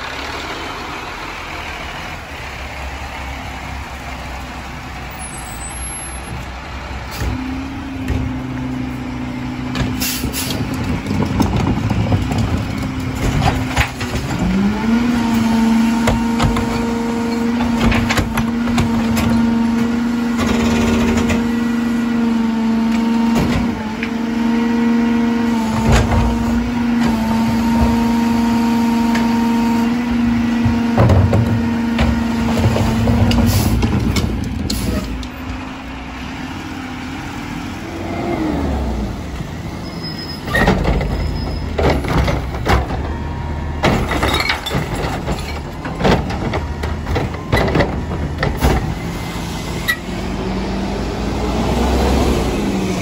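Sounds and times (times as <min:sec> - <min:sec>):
garbage truck engine and hydraulics: 0:00.0 - 0:53.0
cart and falling trash clattering: 0:30.6 - 0:35.2, 0:40.4 - 0:49.1.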